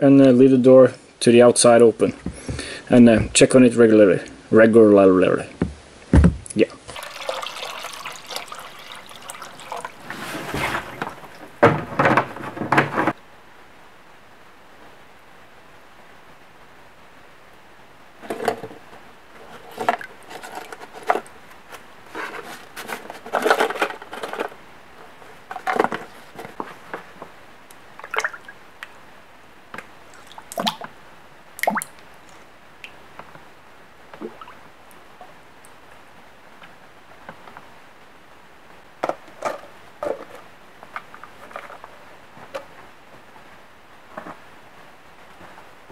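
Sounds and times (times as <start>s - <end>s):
knocks and clatters on plastic bucket: 5.6s - 6.5s, 10.1s - 13.2s, 18.2s - 18.8s, 19.5s - 21.3s, 25.5s - 27.1s, 39.0s - 42.7s
liquid splashing: 6.8s - 11.6s, 28.0s - 28.6s, 30.1s - 30.9s.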